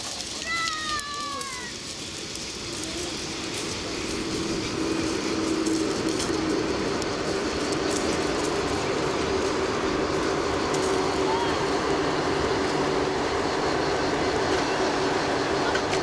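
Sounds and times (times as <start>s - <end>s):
train wheels on rails: 0.0s - 16.0s.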